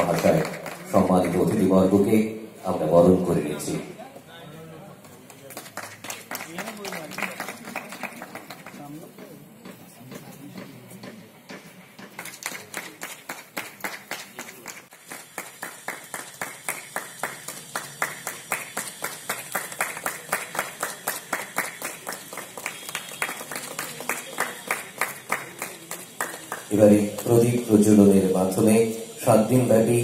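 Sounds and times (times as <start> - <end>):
audience clapping in rhythm: 0.0 - 2.1, 5.0 - 9.3, 12.0 - 28.9.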